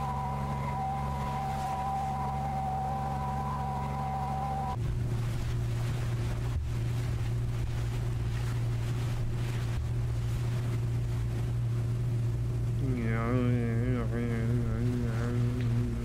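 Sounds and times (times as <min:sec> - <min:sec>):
rushing noise: 0:00.0 - 0:04.9
low hum: 0:00.0 - 0:16.0.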